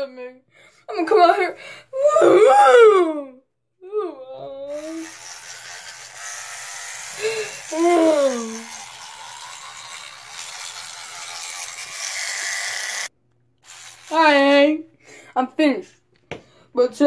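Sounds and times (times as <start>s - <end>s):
electric toothbrush buzzing: 4.7s - 14.8s.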